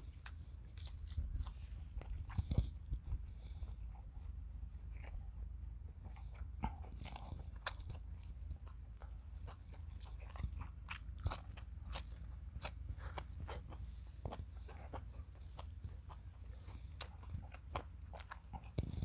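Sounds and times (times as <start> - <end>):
chewing crunchy herbs: 0.0 - 19.0.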